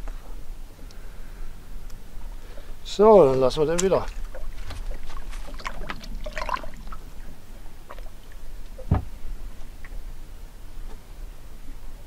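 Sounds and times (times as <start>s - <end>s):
water splashing and trickling: 2.4s - 10.1s
dull thump against boat: 8.8s - 9.2s.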